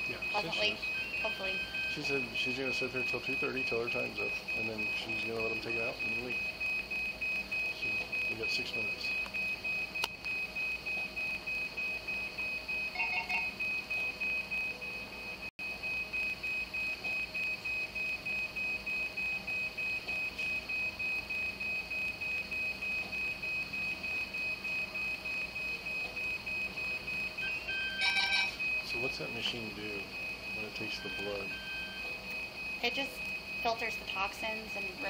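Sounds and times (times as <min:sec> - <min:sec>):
machine alarm beeping: 0:00.0 - 0:35.0.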